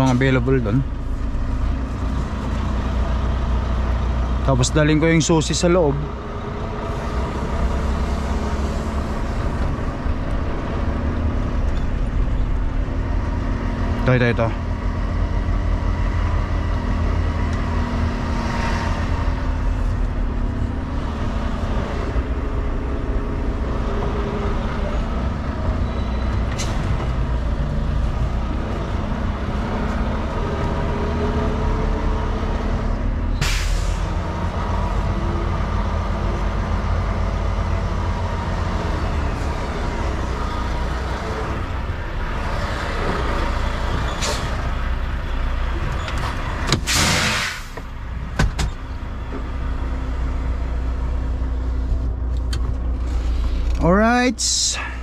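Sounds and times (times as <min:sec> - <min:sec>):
diesel truck engine running: 0:00.0 - 0:55.0
air brake hiss: 0:33.4 - 0:34.0, 0:46.8 - 0:47.8.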